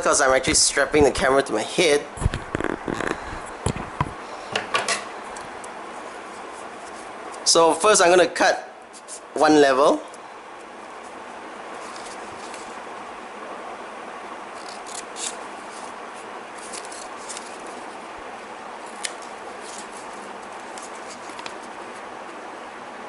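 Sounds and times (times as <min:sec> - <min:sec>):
steady hiss: 0:00.0 - 0:23.0
scissors snipping paper: 0:14.6 - 0:16.0, 0:16.6 - 0:17.9, 0:18.8 - 0:22.0.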